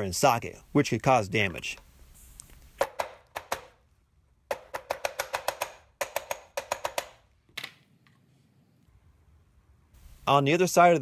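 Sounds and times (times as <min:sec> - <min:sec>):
hammer tapping on metal socket: 0:04.5 - 0:07.2.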